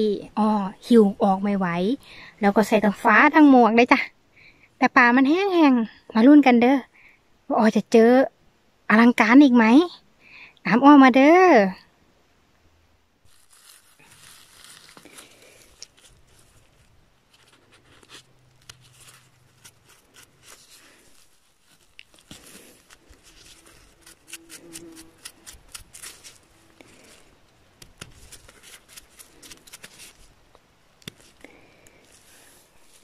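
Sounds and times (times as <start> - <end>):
faint rustling: 13.2 - 33.0
brush scratching mushrooms: 13.3 - 33.0.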